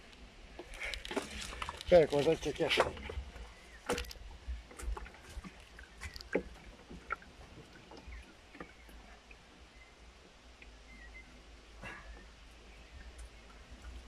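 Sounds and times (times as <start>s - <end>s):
net knocks and clicks: 0.6s - 4.2s.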